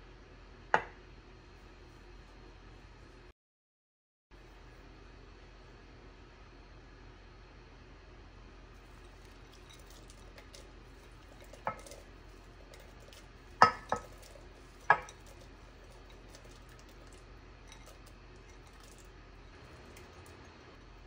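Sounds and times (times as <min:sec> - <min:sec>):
glass bowl clinking on metal pot: 0:08.8 - 0:19.1.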